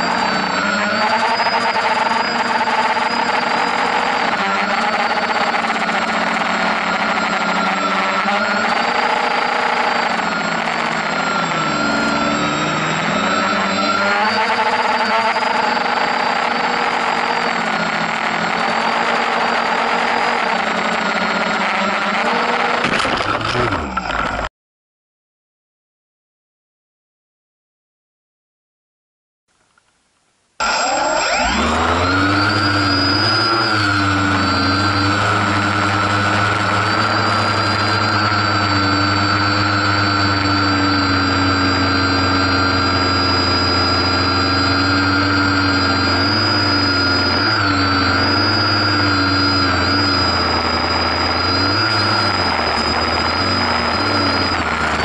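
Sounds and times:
drone motors and propellers whining: 0:00.0 - 0:24.5, 0:30.6 - 0:55.0.

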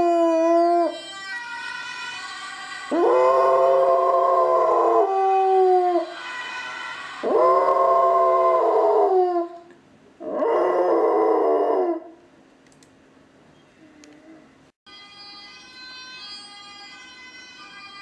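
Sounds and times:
dog howling: 0:02.9 - 0:06.1, 0:07.2 - 0:09.6, 0:10.2 - 0:12.1.

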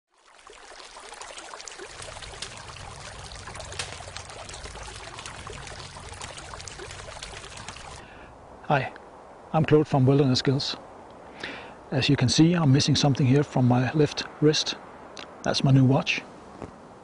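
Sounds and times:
stream running: 0:00.1 - 0:16.0
campfire crackling: 0:00.2 - 0:08.3.

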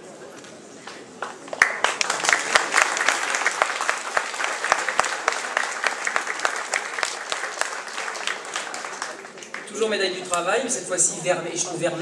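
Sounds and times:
audience applauding: 0:01.2 - 0:09.8.

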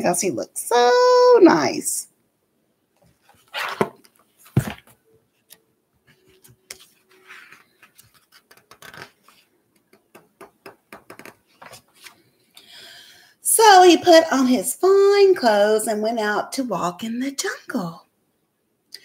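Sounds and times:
book page clicks and rustles: 0:03.0 - 0:12.2
book knocks: 0:03.7 - 0:05.0.

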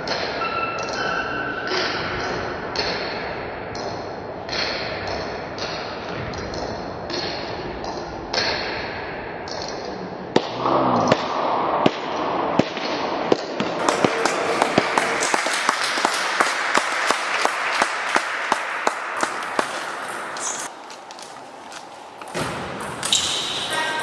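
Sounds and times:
sharp knocks: 0:10.4 - 0:20.7
steady sharp taps: 0:11.9 - 0:23.1.

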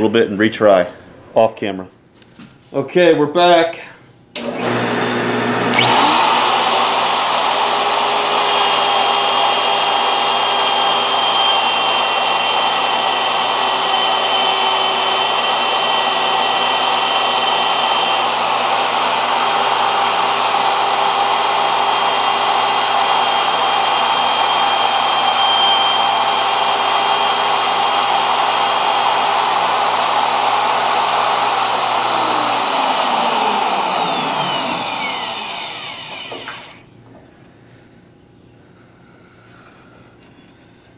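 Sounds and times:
router motor whine: 0:04.4 - 0:36.9.

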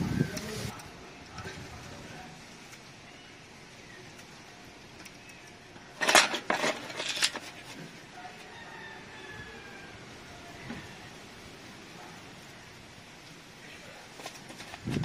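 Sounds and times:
metal tools clinking on basin: 0:06.0 - 0:07.5.

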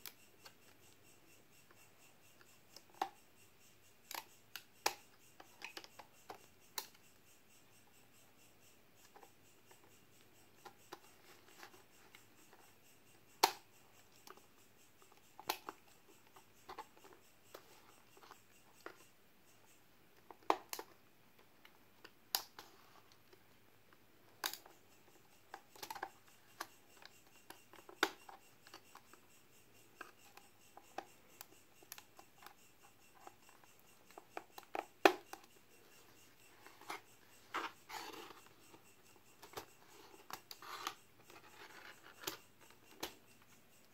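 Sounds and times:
plastic clicks and snaps: 0:13.4 - 0:13.6, 0:22.0 - 0:22.6.

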